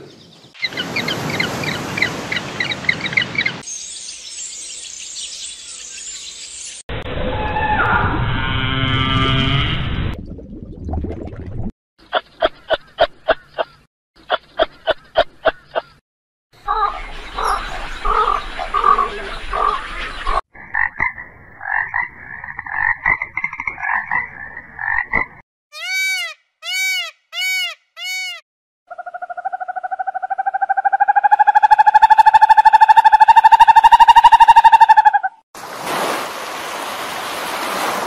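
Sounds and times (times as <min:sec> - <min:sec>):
frog croaking: 0:20.6 - 0:25.3.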